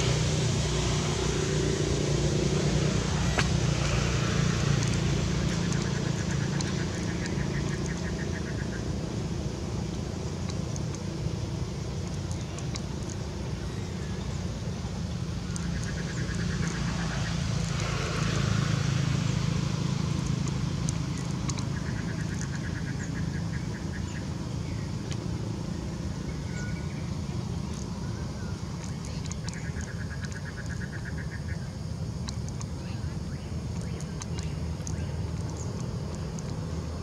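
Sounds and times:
distant traffic rumble: 0.0 - 37.0.

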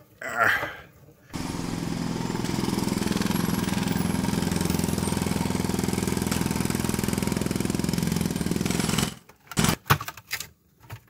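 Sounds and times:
electric screwdriver running: 1.4 - 9.7.

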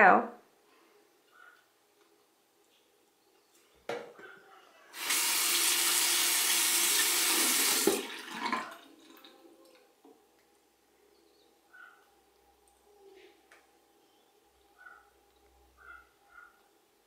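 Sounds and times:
faucet water running: 5.0 - 9.8.

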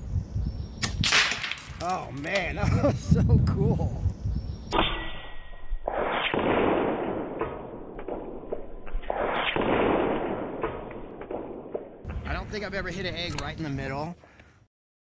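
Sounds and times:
air rifle shots: 0.8 - 1.8, 5.8 - 12.0.

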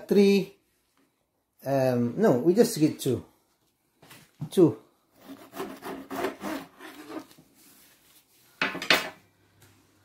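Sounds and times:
knife sawing through wrap: 5.2 - 7.3.

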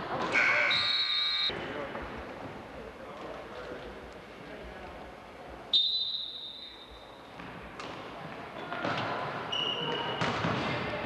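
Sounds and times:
referee's whistle blast: 0.4 - 1.5.

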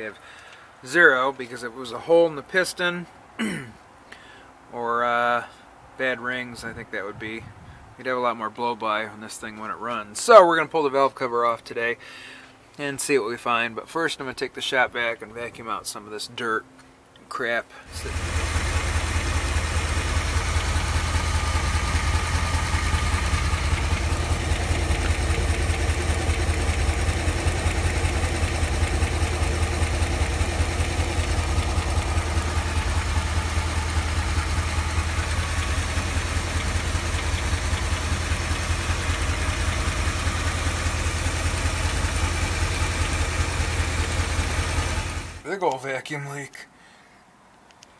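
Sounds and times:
engine idling: 17.9 - 45.4.

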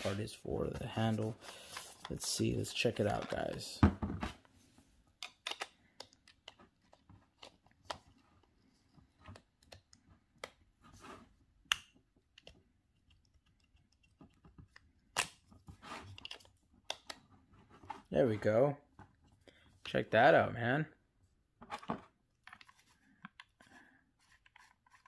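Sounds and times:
plastic clicks taps and scrapes: 11.6 - 17.9, 21.6 - 25.0.

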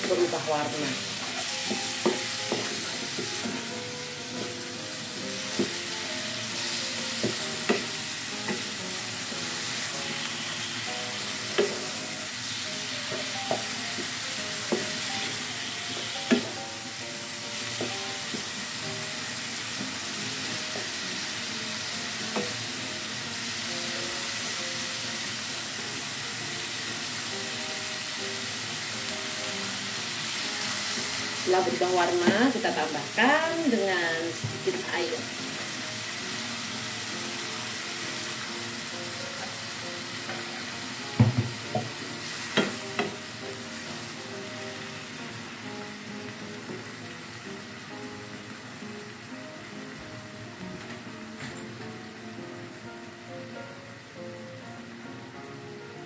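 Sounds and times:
food sizzling in a wok: 0.0 - 56.0
wooden spatula knocking on pan: 1.2 - 3.6, 7.2 - 8.8, 16.0 - 16.6, 41.1 - 43.2.

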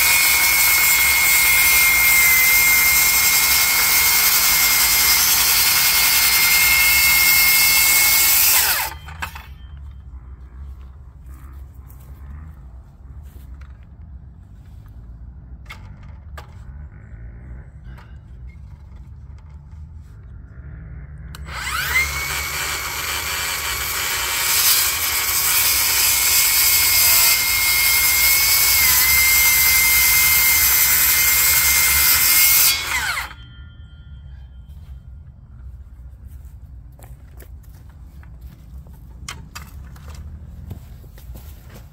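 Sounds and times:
circular saw cutting wood: 0.0 - 9.8, 21.3 - 34.5.

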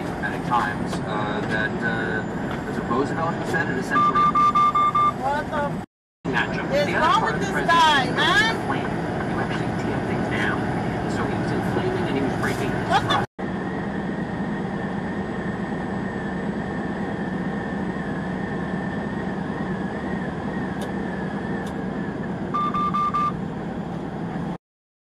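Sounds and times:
car tyre and engine drone: 0.0 - 5.7, 6.3 - 24.6
short electronic beeps: 3.9 - 5.4, 22.5 - 23.4.

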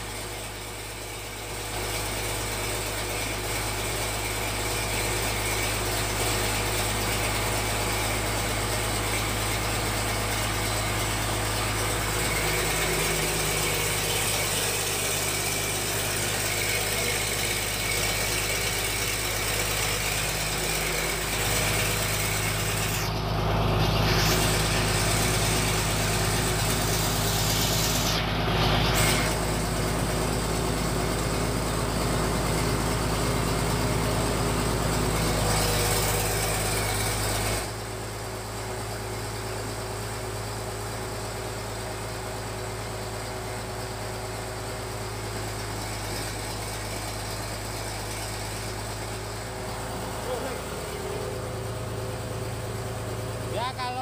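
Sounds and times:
pellet machine engine humming: 0.0 - 54.0.

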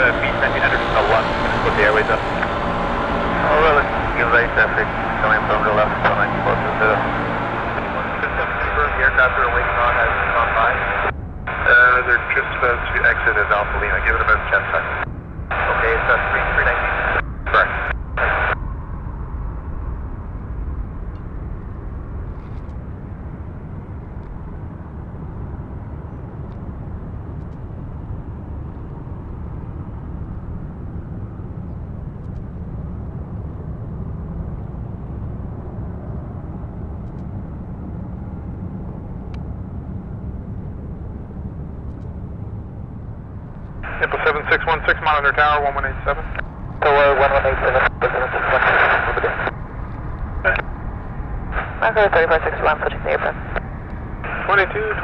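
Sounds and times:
air traffic control radio: 0.0 - 18.6, 43.8 - 50.7, 51.4 - 55.0
jet engines rumbling: 0.0 - 55.0.

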